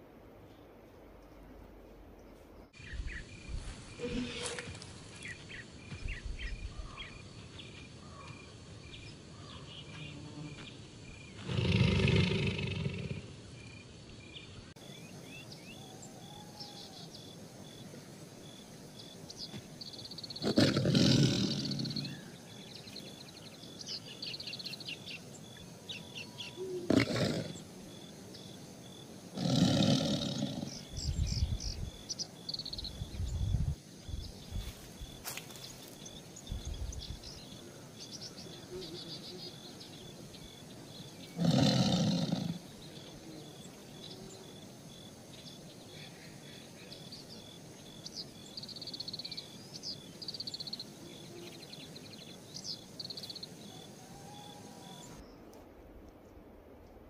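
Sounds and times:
tiger roaring: 11.4s - 13.3s, 20.4s - 22.3s, 26.8s - 27.6s, 29.3s - 30.8s, 41.3s - 42.7s.

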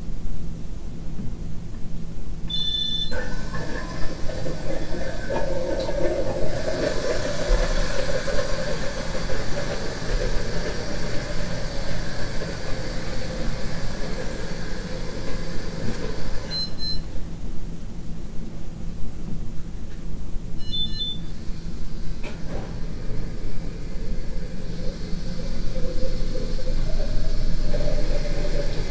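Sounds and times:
short high beep: 2.5s - 3.2s, 20.6s - 21.3s.

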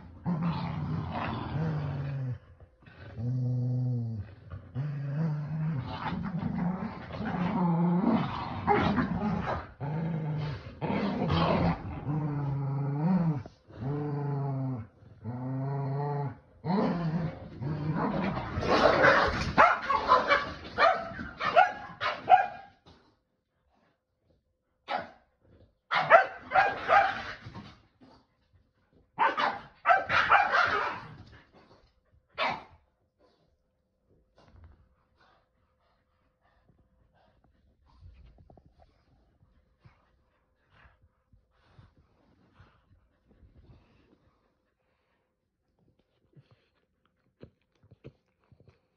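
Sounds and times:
dogs growling: 0.0s - 20.5s
dogs barking and yipping: 29.2s - 31.0s.

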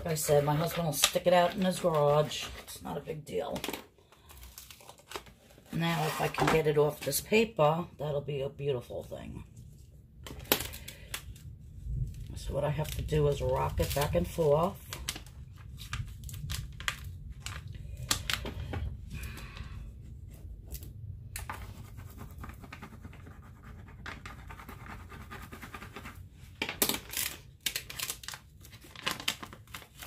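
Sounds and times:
plastic film crackling: 0.0s - 6.4s, 10.2s - 19.4s, 26.6s - 30.0s.

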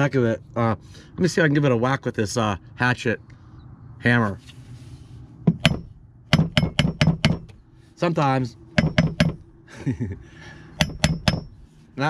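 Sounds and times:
hammer tapping metal housing: 5.5s - 7.6s, 8.8s - 9.4s, 10.8s - 11.7s.

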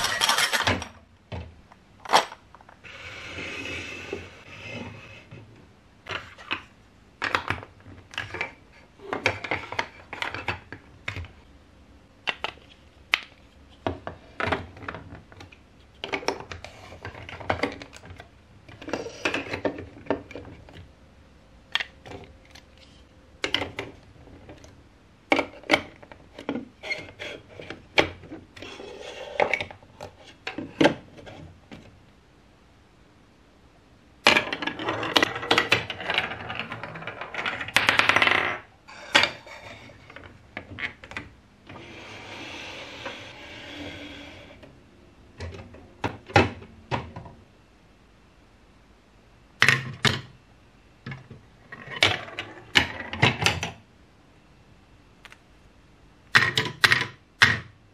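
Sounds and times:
plastic pieces clacking and clicking: 0.0s - 1.0s, 2.0s - 2.8s, 6.1s - 11.4s, 12.3s - 20.9s
marble rolling down plastic track: 34.3s - 44.6s, 51.7s - 53.7s.

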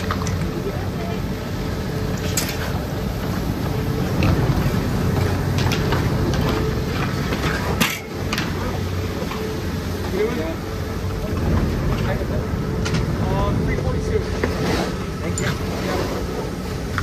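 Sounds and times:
chairlift mechanical hum: 0.0s - 17.0s.

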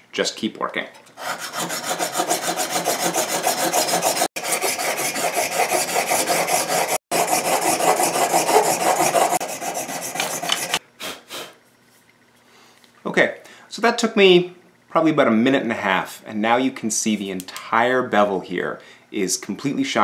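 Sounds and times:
blade rasping on sandpaper: 1.2s - 10.8s.

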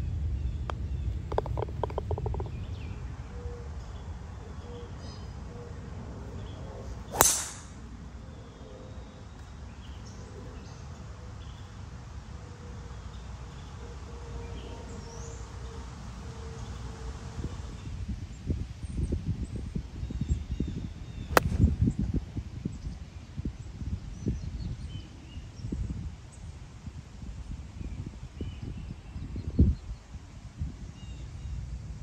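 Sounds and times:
low steady rumble: 0.0s - 18.0s, 21.0s - 22.5s
golf ball rattling into cup: 1.3s - 2.6s
golf driver striking ball: 7.1s - 7.8s, 21.3s - 21.7s.

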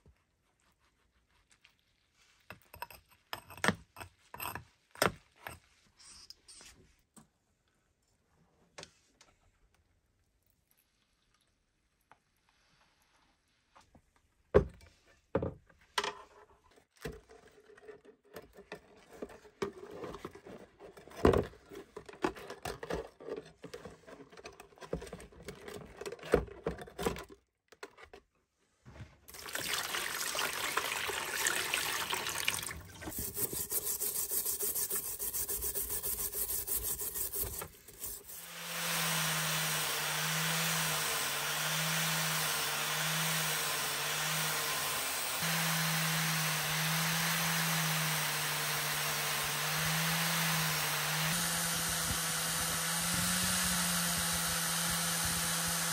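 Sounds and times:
water rushing: 29.3s - 33.1s
angle grinder running: 33.1s - 55.9s.

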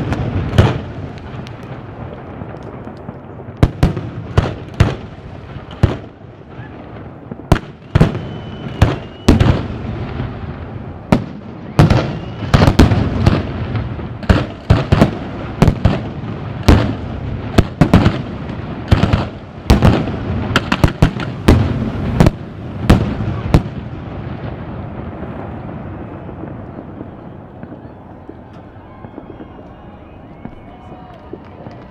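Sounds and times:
fireworks crackling rumble: 0.0s - 31.9s
fireworks loud bangs: 0.0s - 31.9s.

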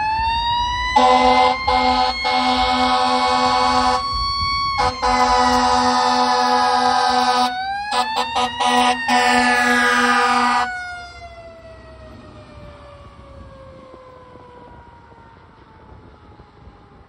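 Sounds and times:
mechanical siren wailing: 0.0s - 17.0s
fire engine air horns: 0.9s - 11.0s.

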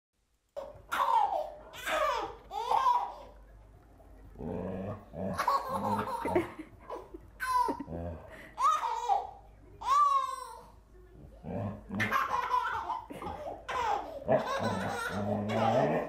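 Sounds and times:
baby giggling and squealing: 12.0s - 15.9s.

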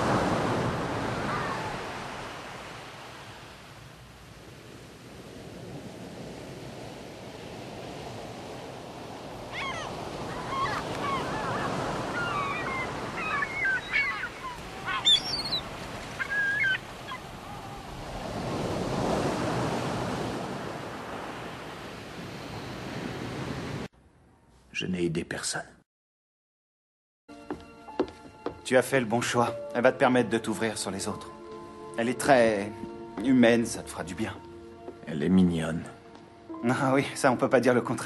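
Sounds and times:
rushing noise like surf: 0.0s - 23.9s
short bird calls: 9.5s - 17.9s.

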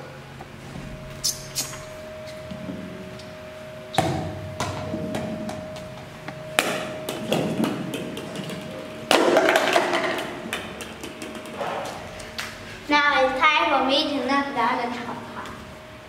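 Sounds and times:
plastic cups knocked and clattering: 7.1s - 11.6s.

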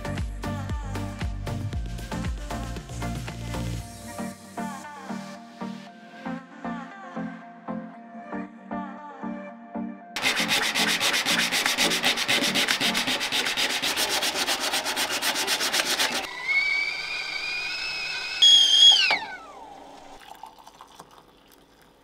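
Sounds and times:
hand sanding steel: 10.2s - 18.0s
kettle whistling: 16.2s - 20.2s.

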